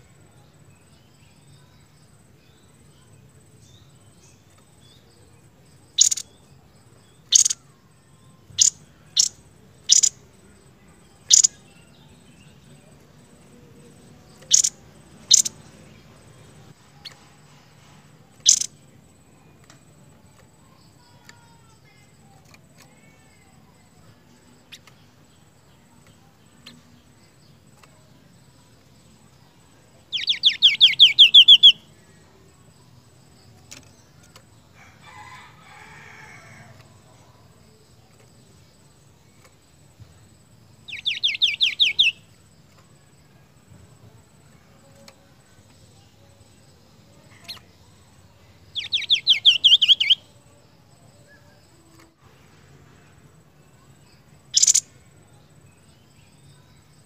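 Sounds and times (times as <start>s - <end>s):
songbird chip notes: 0.0s - 17.3s, 18.2s - 34.5s, 35.1s - 57.0s
bird fast trill: 5.9s - 6.3s, 7.2s - 7.6s, 8.5s - 10.2s, 11.3s - 11.6s, 14.5s - 15.6s, 18.4s - 18.8s, 30.1s - 31.9s, 40.9s - 42.2s, 48.7s - 50.3s, 54.5s - 55.0s.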